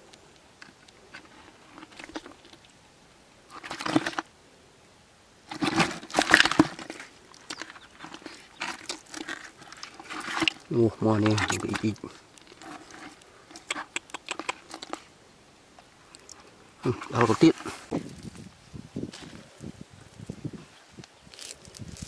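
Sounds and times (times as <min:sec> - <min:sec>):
hands rummaging among fish in bucket: 0:01.1 - 0:02.6, 0:03.5 - 0:04.3, 0:05.5 - 0:15.1, 0:16.2 - 0:18.2.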